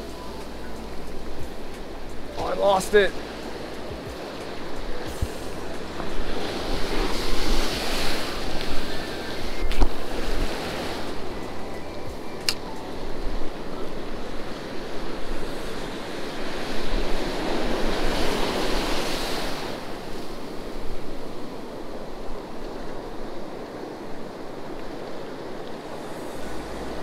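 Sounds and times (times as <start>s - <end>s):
ocean surf washing onto beach: 0.0s - 27.0s
wind on microphone: 0.0s - 27.0s
sharp click: 12.4s - 12.7s.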